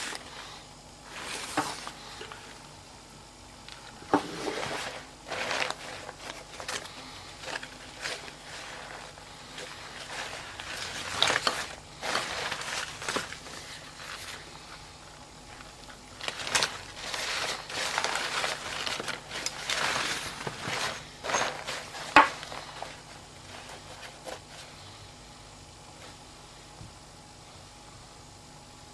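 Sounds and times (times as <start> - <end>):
fabric rustling and crinkling: 4.0 - 14.8, 15.4 - 24.8.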